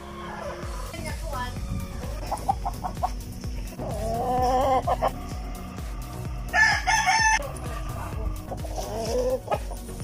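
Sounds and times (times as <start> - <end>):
rooster crowing: 6.5 - 7.5.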